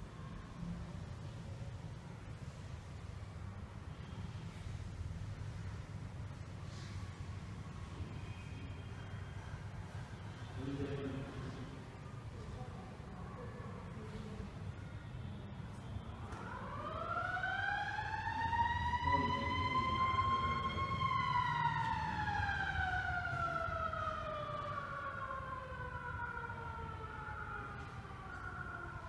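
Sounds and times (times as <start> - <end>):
siren wailing: 16.2 - 29.0.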